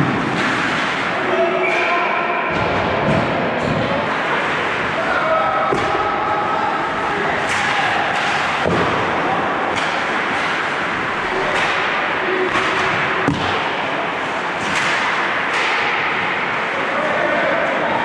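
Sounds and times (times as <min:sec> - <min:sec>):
hockey stick and puck clacks: 0:00.0 - 0:04.6, 0:07.4 - 0:16.6.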